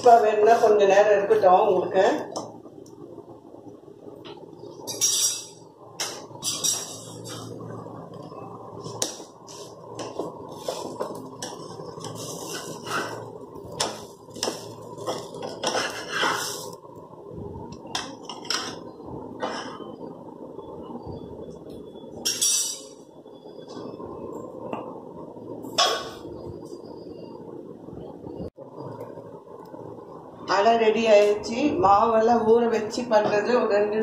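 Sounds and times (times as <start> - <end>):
steady low hiss: 0.0 - 34.0
spatula scraping frying pan: 9.5 - 16.8.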